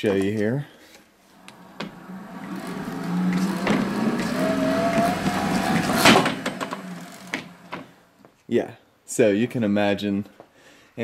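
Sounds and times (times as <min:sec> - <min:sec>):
exercise machine whirring: 0:01.3 - 0:08.1.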